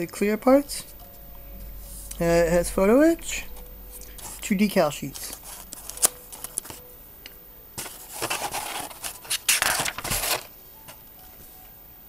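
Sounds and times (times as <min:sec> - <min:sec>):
paper pages rustling: 0:07.8 - 0:10.5.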